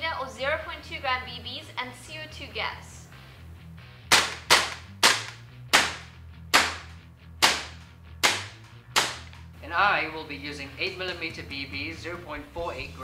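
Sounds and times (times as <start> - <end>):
airsoft rifle shots: 4.1 - 9.4.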